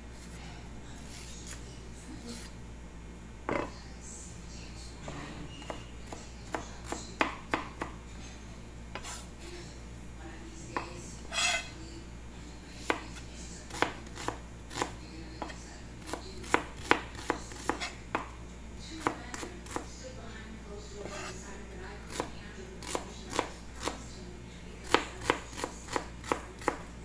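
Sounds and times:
knife chopping on plastic board: 5.6 - 8.0, 12.8 - 18.3, 19.0 - 19.9, 22.1 - 24.0, 24.8 - 26.8.

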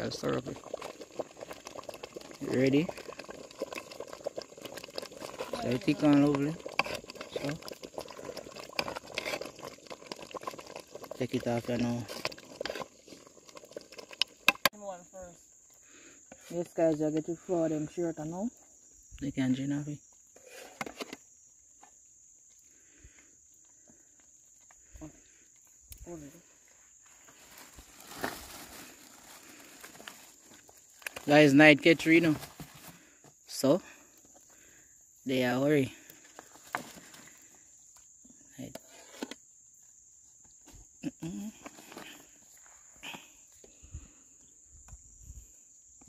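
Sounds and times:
crickets chirring: 0.0 - 46.0
high-pitched insect trill: 0.0 - 46.0.

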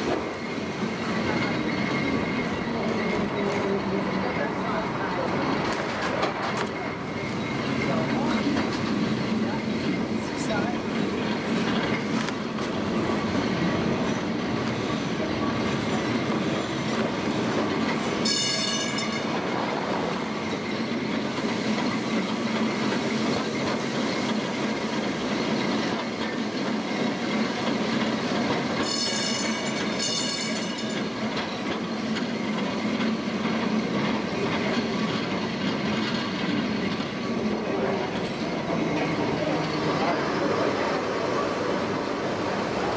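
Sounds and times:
tram wheels rumbling on rails: 0.0 - 42.9
high ringing bell: 18.3 - 19.3.

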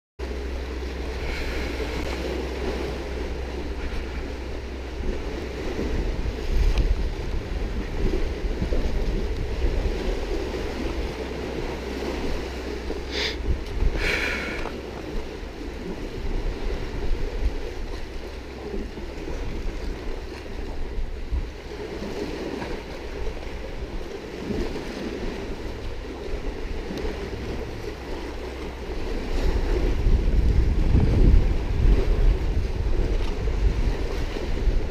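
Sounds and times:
sea waves on rocks: 0.2 - 34.9
wind buffeting microphone: 0.2 - 34.9.

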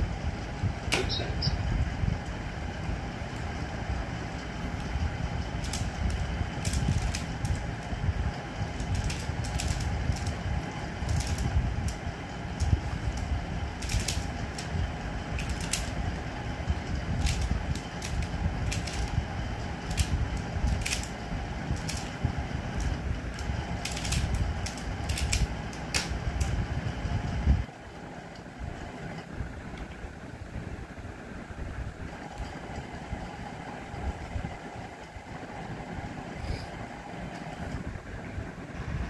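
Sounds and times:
plastic puzzle pieces clicking: 5.6 - 7.9, 8.7 - 16.0, 17.2 - 19.2, 19.8 - 22.2, 22.8 - 26.6.

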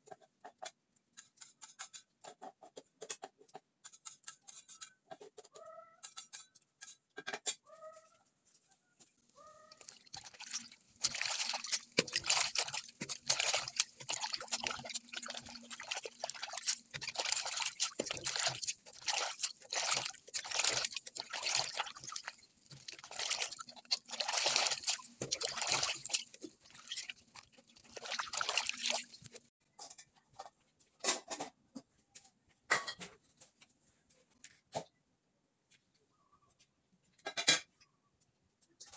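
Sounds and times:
water sloshing and splashing: 9.7 - 29.5.

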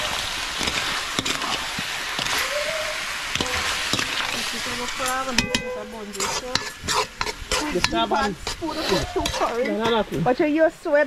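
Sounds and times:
metal spoon scraping a pan: 0.0 - 2.5, 3.2 - 10.3
meat sizzling in hot oil: 0.0 - 11.0
wavering pitched tone: 5.0 - 6.5.

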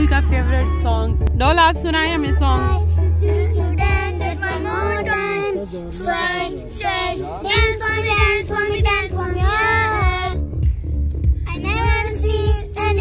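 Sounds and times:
girl singing: 2.2 - 10.4, 11.5 - 13.0.

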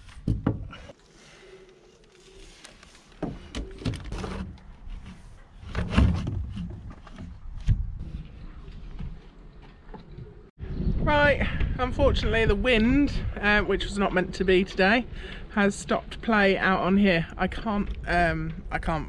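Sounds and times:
wind rumble on microphone: 6.3 - 9.2, 10.1 - 15.3.

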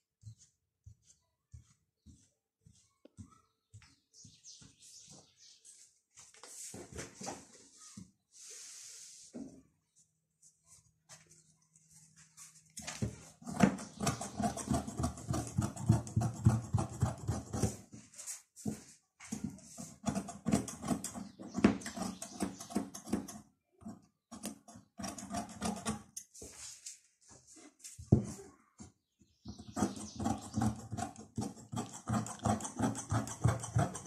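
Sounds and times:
scissors snipping fabric: 29.8 - 34.0.

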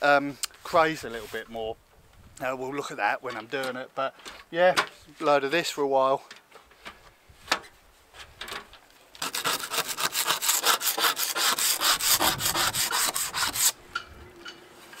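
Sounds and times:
paint being scraped off hull: 9.2 - 13.8.

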